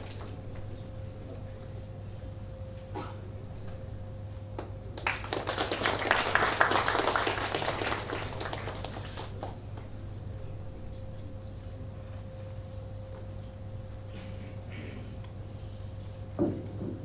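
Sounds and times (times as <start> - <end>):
steady electrical hum: 0.0 - 17.0
audience applauding: 5.0 - 9.6.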